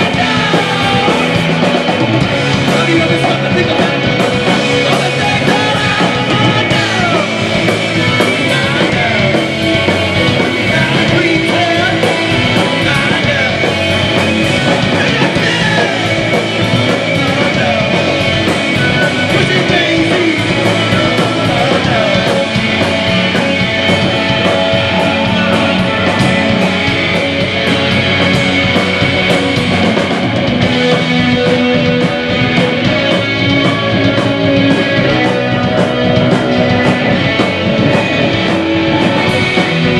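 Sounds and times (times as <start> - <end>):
man singing: 0.0 - 27.2
rock band playing: 0.0 - 39.9.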